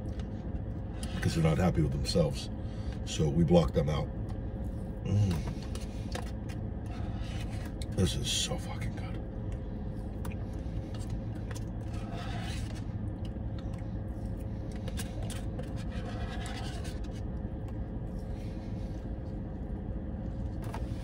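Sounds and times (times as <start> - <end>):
steady low hum: 0.0 - 21.0
plastic spoon scraping milkshake: 5.5 - 8.0, 10.9 - 13.0, 14.3 - 17.3.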